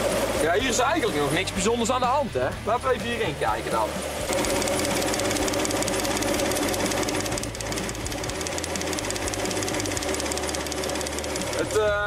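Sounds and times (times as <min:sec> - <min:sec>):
engine idling with ticking rattle: 0:04.3 - 0:12.0.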